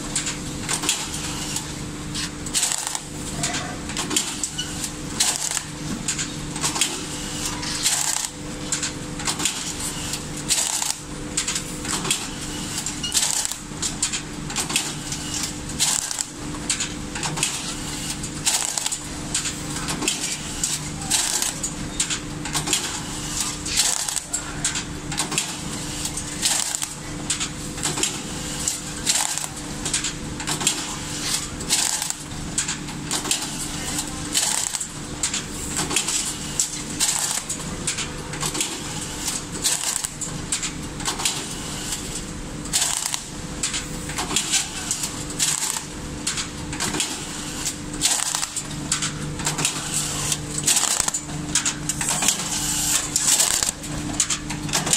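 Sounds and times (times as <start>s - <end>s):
strapping machine motor hum: 0.0s - 54.9s
sharp machine clicks and clacks: 0.1s - 54.9s.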